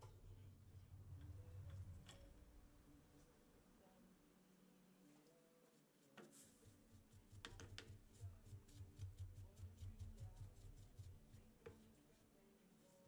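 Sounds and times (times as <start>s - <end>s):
low handling rumble: 0.1s - 3.1s.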